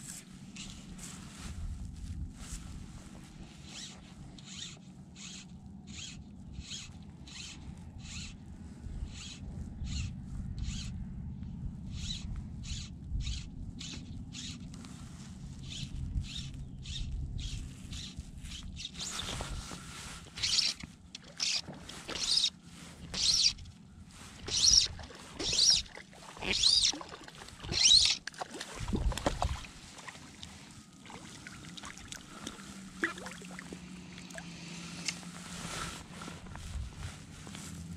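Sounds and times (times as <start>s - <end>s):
fly line zipping through rod guides: 3.6s - 8.3s, 18.0s - 29.6s.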